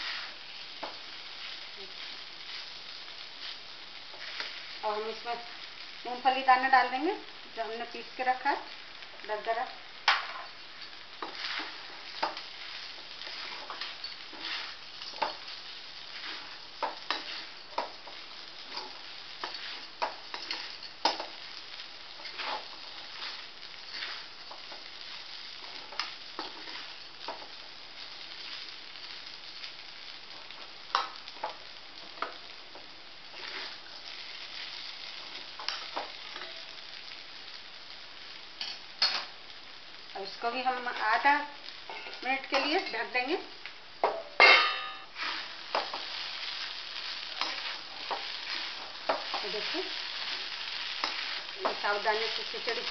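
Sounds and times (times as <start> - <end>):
faint steady sizzle: 0.0 - 52.9
metal spatula scraping pan: 16.2 - 17.9, 22.2 - 24.3.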